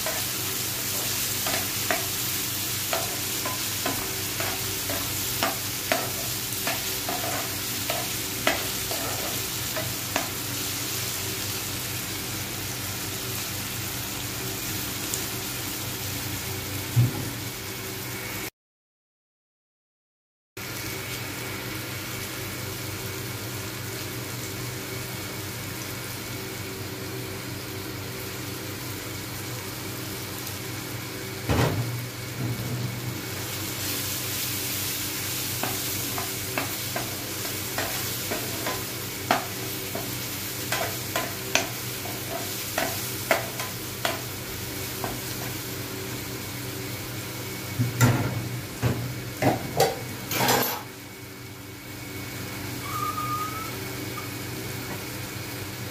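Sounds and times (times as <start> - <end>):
vegetables sizzling in oil: 0.0 - 18.5, 20.6 - 55.9
spatula scraping pan: 2.9 - 10.3, 35.6 - 44.2.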